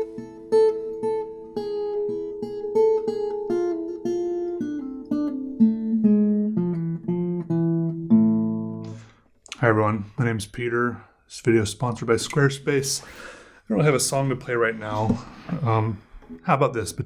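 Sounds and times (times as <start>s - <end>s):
acoustic guitar plucked notes: 0.0s - 9.2s.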